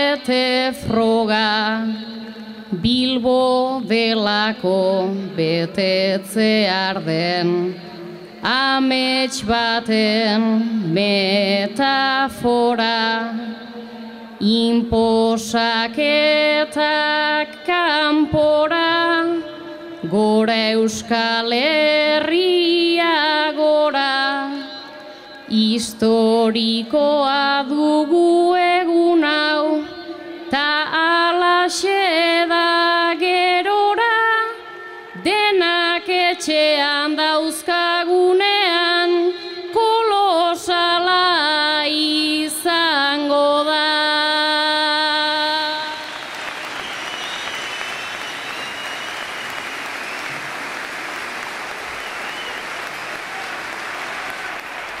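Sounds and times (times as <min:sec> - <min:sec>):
person singing unaccompanied: 0:00.0 - 0:07.8, 0:08.4 - 0:13.6, 0:14.4 - 0:24.8, 0:25.5 - 0:34.6
crowd applause and cheering: 0:46.0 - 0:55.0.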